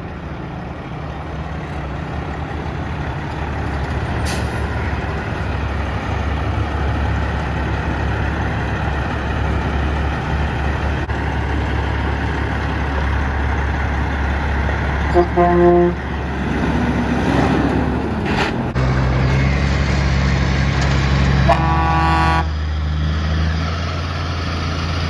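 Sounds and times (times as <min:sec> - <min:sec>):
diesel truck engine rumbling: 0:00.0 - 0:25.0
air brakes hissing: 0:04.2 - 0:04.8.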